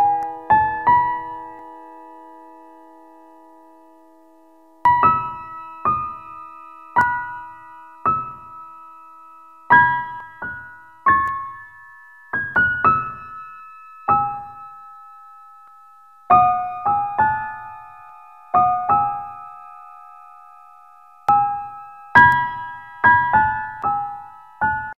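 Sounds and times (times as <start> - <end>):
slow solo piano melody: 0.0 - 24.9.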